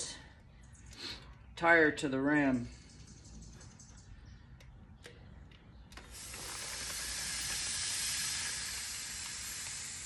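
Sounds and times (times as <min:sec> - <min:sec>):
compressed air hissing into tire: 0:06.0 - 0:10.0.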